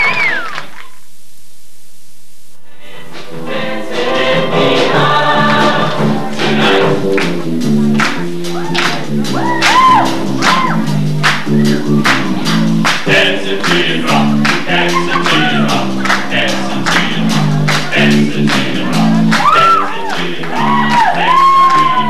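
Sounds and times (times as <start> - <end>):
choir singing upbeat song: 2.6 - 10.8, 11.5 - 22.0
band with percussion beat: 5.0 - 22.0.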